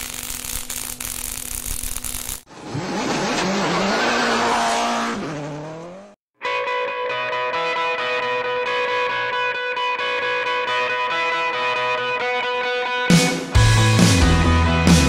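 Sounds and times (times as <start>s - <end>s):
sparks hissing: 0.0s - 2.5s
tire squeal: 2.5s - 5.7s
race car engine revving: 2.5s - 6.2s
electric guitar music: 6.4s - 15.0s.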